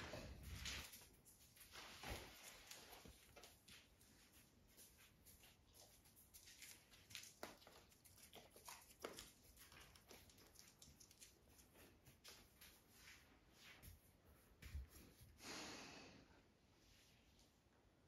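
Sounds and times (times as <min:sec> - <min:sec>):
cats rustling and tapping in crate: 0:00.0 - 0:13.1.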